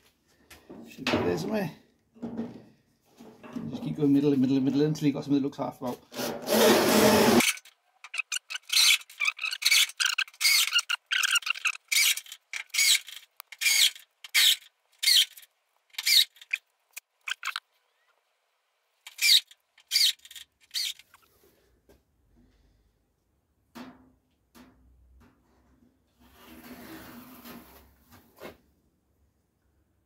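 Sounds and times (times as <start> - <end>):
screws squealing into metal: 6.2 - 15.4, 16.0 - 16.6, 19.1 - 21.2.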